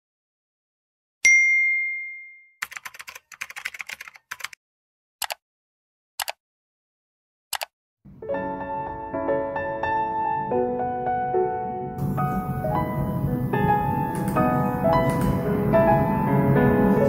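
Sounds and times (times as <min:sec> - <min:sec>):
keyboard typing: 0:02.6 - 0:04.6, 0:06.2 - 0:06.4, 0:07.5 - 0:07.7, 0:14.1 - 0:15.5
single clicks: 0:07.5 - 0:07.7
soft piano music: 0:08.1 - 0:17.0.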